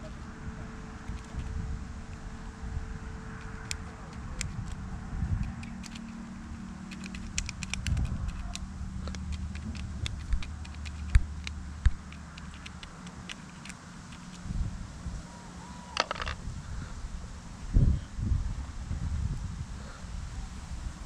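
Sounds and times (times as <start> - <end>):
clicks and crinkles of handling: 1.0 - 2.2, 3.4 - 14.5, 16.0 - 16.4.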